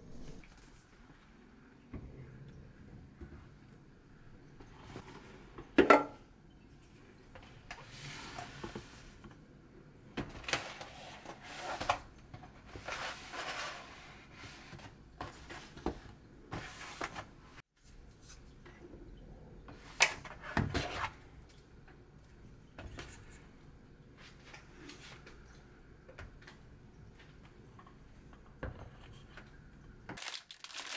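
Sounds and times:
packaging rustling: 30.2 - 30.9.

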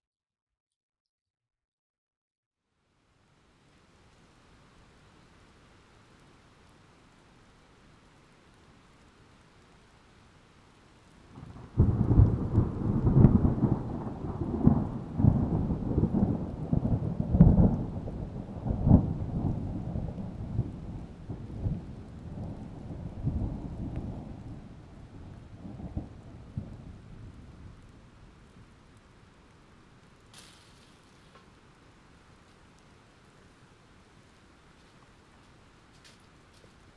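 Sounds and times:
thunder rolling and crackling: 10.8 - 32.9.

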